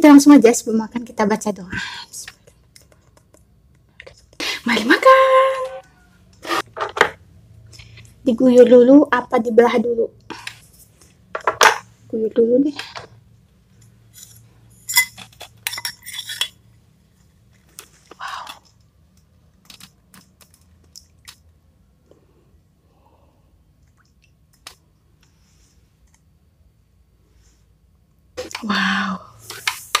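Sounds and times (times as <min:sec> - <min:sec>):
metal spoon clinking on glass bowl: 0:14.2 - 0:16.6.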